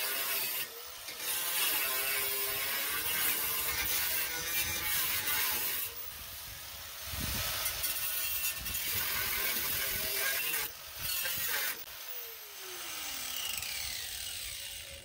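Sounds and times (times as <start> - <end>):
angle grinder cutting steel: 0.0 - 15.0
grinder spinning down: 9.0 - 15.0.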